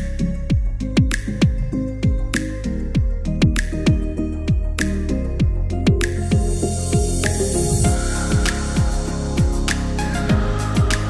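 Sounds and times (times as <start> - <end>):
kick drum beat: 0.5 - 2.4, 3.0 - 4.8, 5.4 - 9.7, 10.3 - 11.0.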